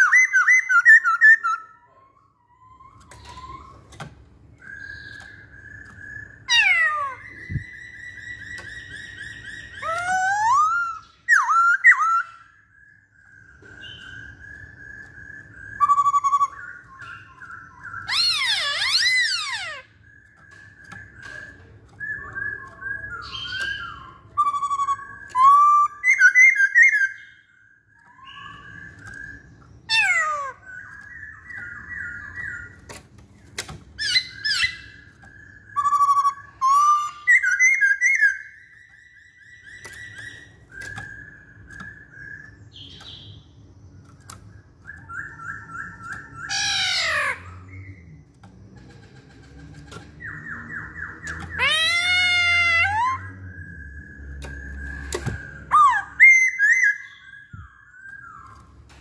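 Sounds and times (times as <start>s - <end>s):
bird singing whistled phrases: 0.0s - 32.9s, 34.0s - 48.2s, 50.2s - 58.8s
sharp downward bird calls: 44.9s - 48.0s, 50.2s - 58.7s.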